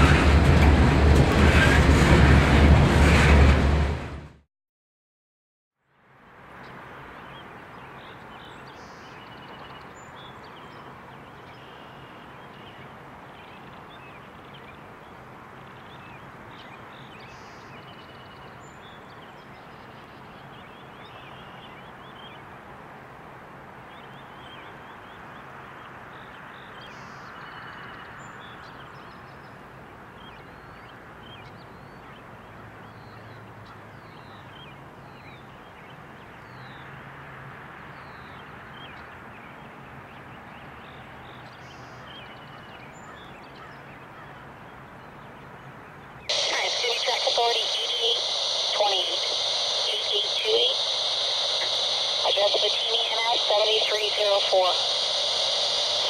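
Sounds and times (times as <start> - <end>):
steady hiss: 46.3 - 56.0.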